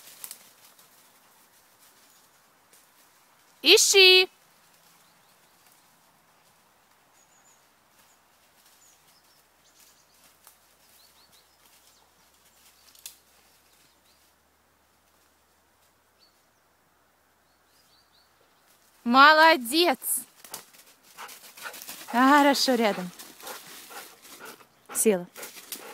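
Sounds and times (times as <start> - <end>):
faint crackles: 0.0 - 3.6, 4.4 - 16.0.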